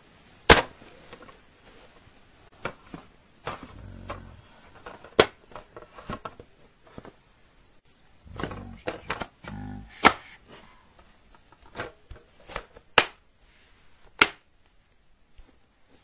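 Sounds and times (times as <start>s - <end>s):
plastic dvd case snapping: 8.4s - 9.3s.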